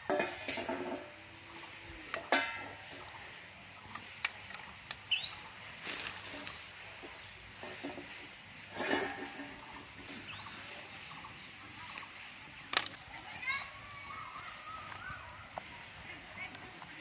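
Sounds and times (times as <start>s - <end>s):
firewood and pan knocking: 0.0s - 5.4s, 6.2s - 13.2s
bird chirp: 5.0s - 5.6s, 10.0s - 12.4s, 13.8s - 16.1s.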